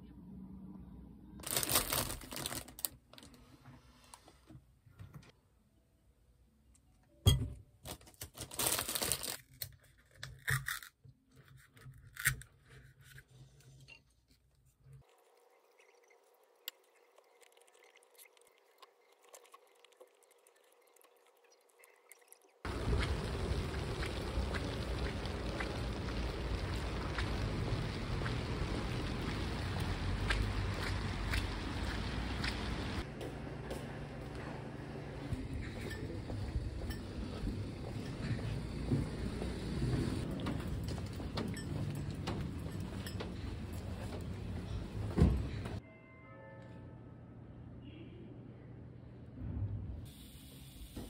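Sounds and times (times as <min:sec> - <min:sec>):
plastic bag crinkling: 0:01.4 - 0:03.4, 0:07.9 - 0:09.9
rain falling on paving: 0:22.7 - 0:33.0.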